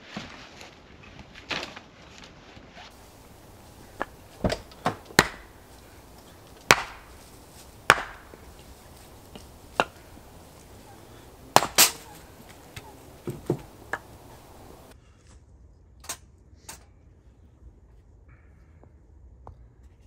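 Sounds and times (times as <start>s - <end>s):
hatchet chopping wood: 3.0s - 14.9s.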